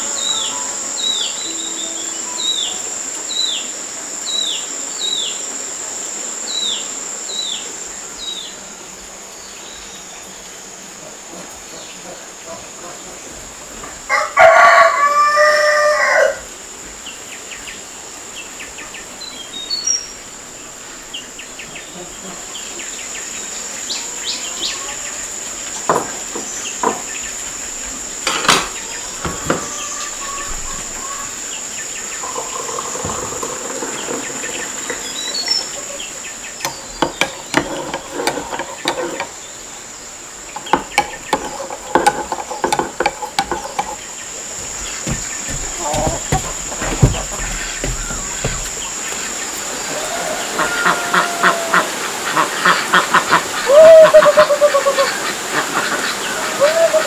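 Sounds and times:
insects droning: 0.0 - 57.0
rooster crowing: 14.1 - 16.5, 29.0 - 31.5, 49.7 - 52.1, 53.6 - 55.2, 56.4 - 57.0.

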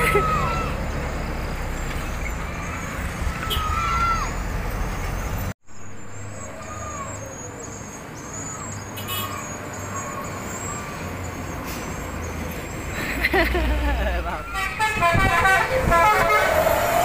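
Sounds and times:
diesel trucks passing: 0.0 - 17.0
traffic engine hum: 0.0 - 17.0
people shouting: 2.4 - 4.4.

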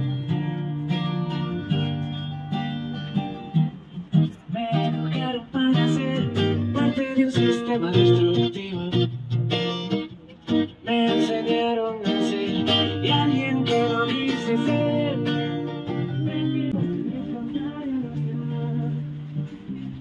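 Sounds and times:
acoustic guitar strumming: 0.0 - 20.0
person singing into a microphone: 4.4 - 9.2, 10.7 - 20.0.

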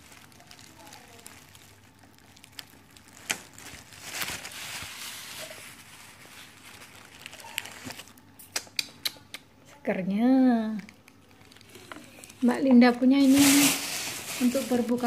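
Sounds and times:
plastic bag rustling: 0.0 - 8.2, 11.4 - 15.0.

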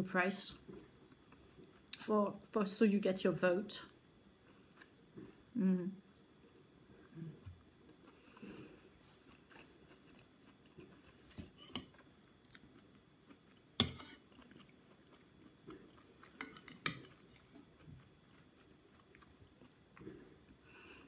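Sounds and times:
quiet chewing: 0.6 - 2.1, 4.4 - 5.5, 6.4 - 21.0
cutlery clinking on a plate: 13.8 - 14.2.

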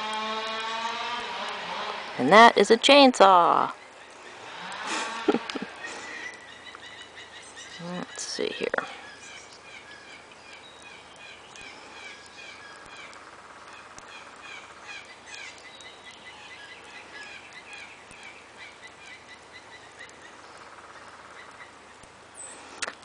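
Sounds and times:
songbird chirping: 0.0 - 23.0
faint clicks: 10.3 - 15.9, 22.8 - 23.0.

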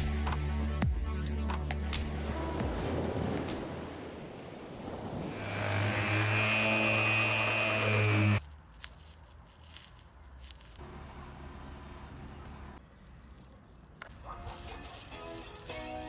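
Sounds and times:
power tool motor running: 5.3 - 8.4.

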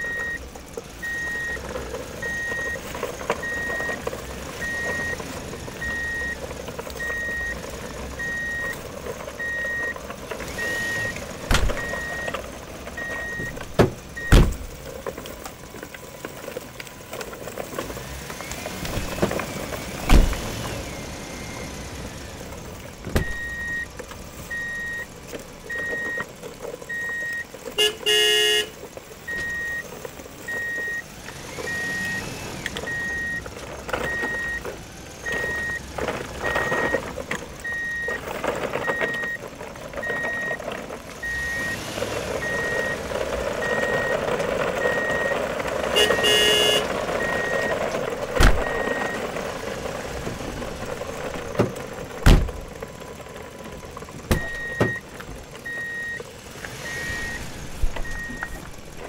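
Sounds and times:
electronic reversing alarm beeping: 0.0 - 0.4, 1.0 - 1.6, 2.2 - 2.8, 4.6 - 5.2, 5.8 - 6.4, 7.0 - 7.6, 10.6 - 12.4, 13.0 - 13.6, 14.2 - 14.6, 23.2 - 23.9, 29.3 - 29.8, 41.2 - 41.8, 42.4 - 43.0, 48.4 - 49.2, 54.4 - 55.0, 55.6 - 56.2, 56.8 - 57.4, 58.0 - 58.6
truck horn toot: 27.8 - 28.8, 45.9 - 47.6.

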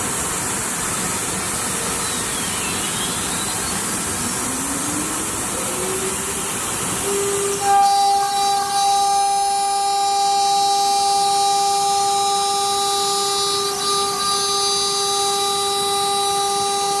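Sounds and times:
machine noise rush: 3.0 - 9.6
router spindle whine: 3.6 - 17.0.

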